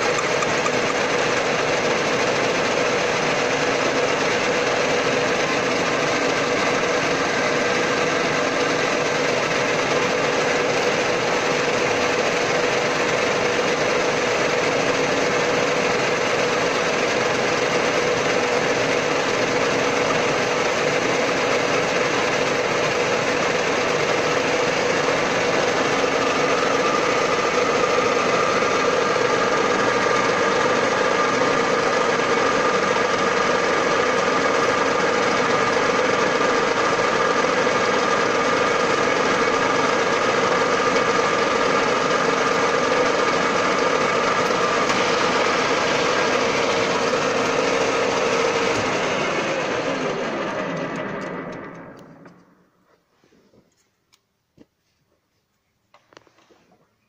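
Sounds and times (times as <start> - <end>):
lathe whining: 0.0 - 52.6.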